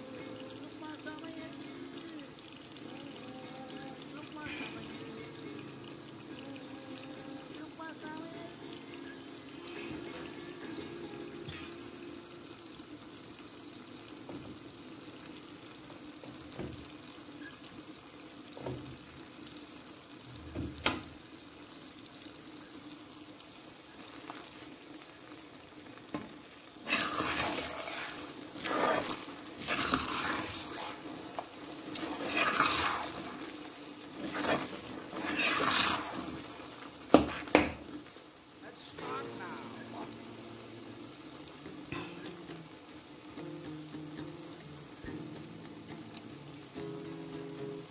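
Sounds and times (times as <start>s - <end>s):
wet stirring strokes: 26.4s - 38.3s
spatula knocking on pan: 37.1s - 37.8s.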